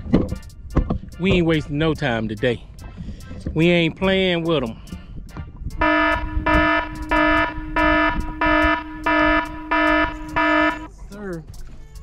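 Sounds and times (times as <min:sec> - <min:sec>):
alarm buzzer beeping: 0:05.8 - 0:10.9
steady tone: 0:05.8 - 0:10.9.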